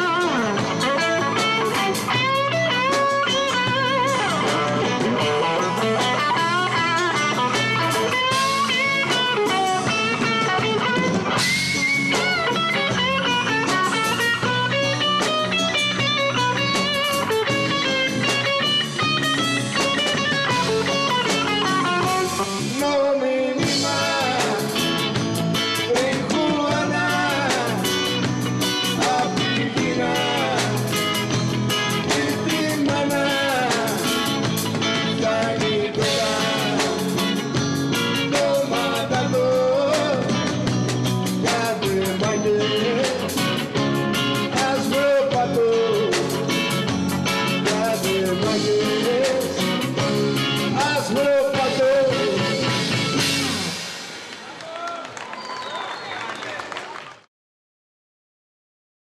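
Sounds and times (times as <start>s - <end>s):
live rock band playing: 0.0s - 54.8s
man singing: 21.6s - 40.6s, 41.3s - 43.8s, 44.4s - 46.8s, 47.4s - 53.4s.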